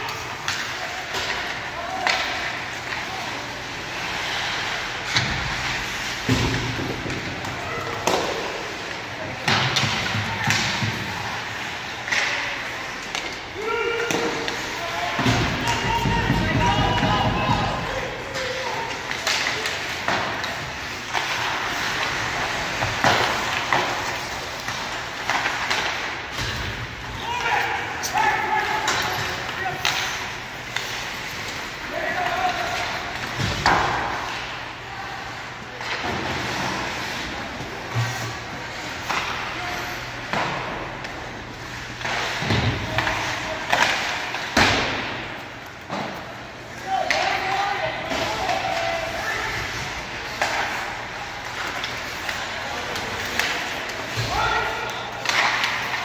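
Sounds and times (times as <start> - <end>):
skates scraping ice: 0.0 - 56.0
skate blades scraping ice: 0.1 - 26.6
hockey sticks and puck knocking: 0.1 - 34.6, 40.2 - 56.0.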